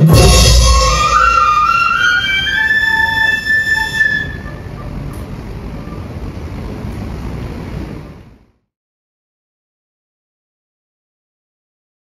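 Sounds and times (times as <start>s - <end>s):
brass band sustained chord: 0.0s - 6.9s
steady low noise: 0.0s - 8.7s.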